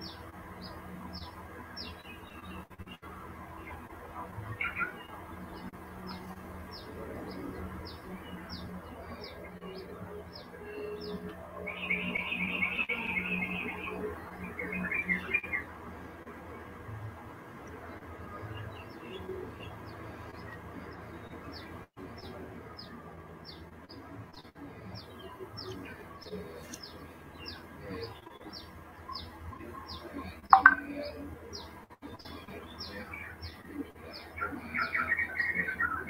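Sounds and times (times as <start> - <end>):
bird chirping: 30.5 - 31.0
lower bird calls: 30.6 - 31.0.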